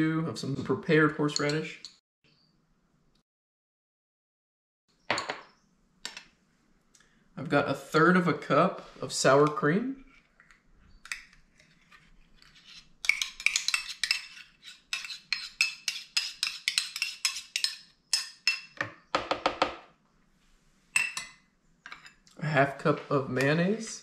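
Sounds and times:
metal spoon scraping a cup: 11.6 - 17.8.

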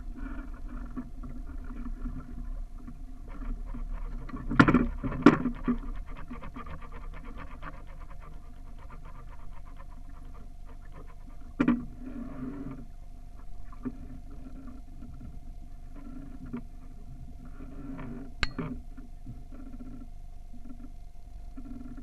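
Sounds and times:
water sloshing against hull: 0.1 - 6.6, 9.6 - 22.0
faint whine: 7.7 - 22.0.

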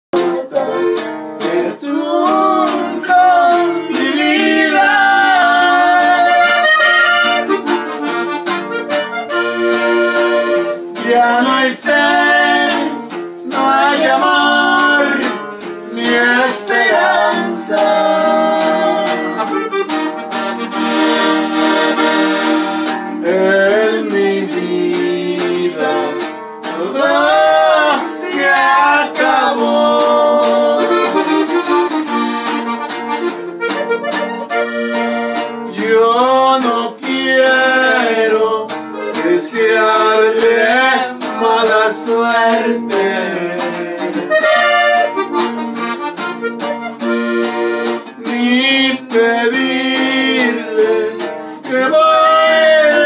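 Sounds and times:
man singing: 0.1 - 7.5, 10.9 - 19.6, 23.1 - 31.6, 35.6 - 45.0, 48.1 - 53.0
button accordion music: 0.1 - 53.0
strummed guitar: 0.1 - 53.0.

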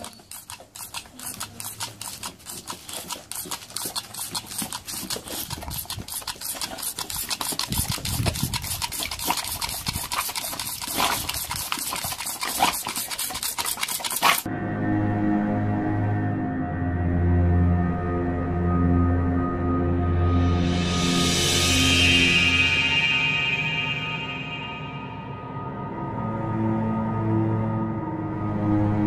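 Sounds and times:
toy water pistol trigger clicking: 0.0 - 11.5
water squirting: 0.0 - 14.5.

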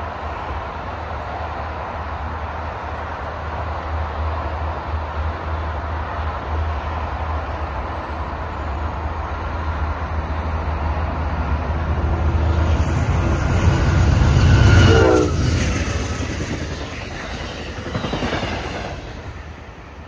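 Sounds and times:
passing train rumble: 0.0 - 20.0
train horn: 13.3 - 15.6.

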